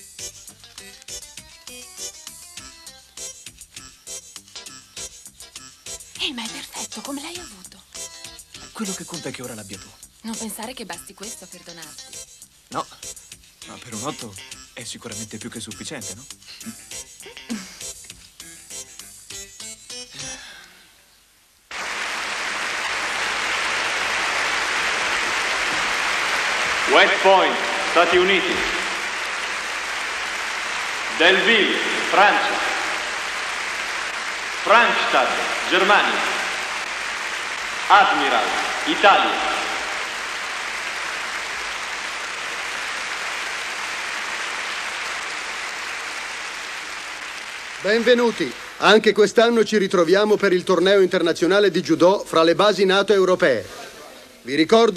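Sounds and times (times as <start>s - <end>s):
audience applause: 21.7s - 49.1s.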